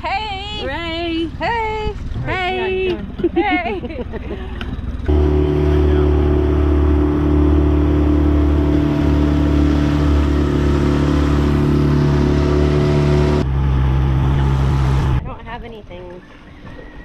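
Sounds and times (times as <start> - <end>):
outboard motor running: 0.0 - 17.0
water rushing past hull: 5.0 - 15.3.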